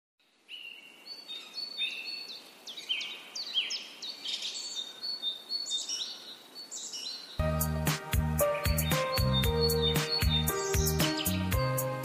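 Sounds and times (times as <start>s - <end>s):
faint background hiss: 0.2s - 7.4s
birds singing: 0.5s - 7.7s, 8.4s - 12.0s.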